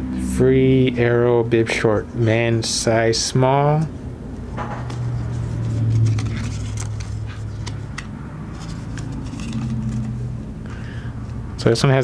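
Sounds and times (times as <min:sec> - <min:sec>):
low hum: 0:03.8 - 0:11.6
paper tags crinkling: 0:04.7 - 0:10.4.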